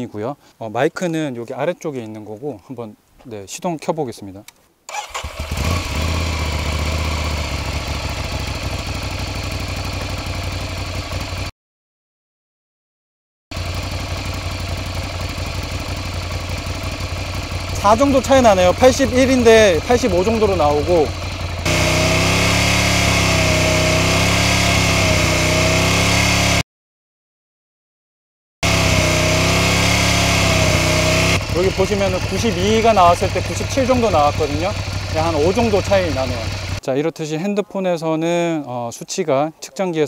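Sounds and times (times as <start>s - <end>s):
motorcycle engine starting and idling: 4.9s - 11.5s, 13.5s - 26.6s, 28.6s - 36.8s.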